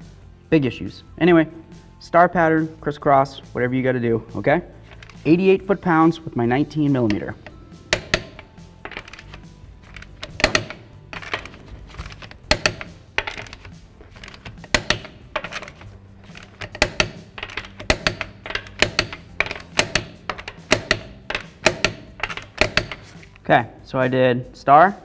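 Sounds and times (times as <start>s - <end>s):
torque wrench clicking: 4.9s - 5.3s, 7.1s - 23.2s.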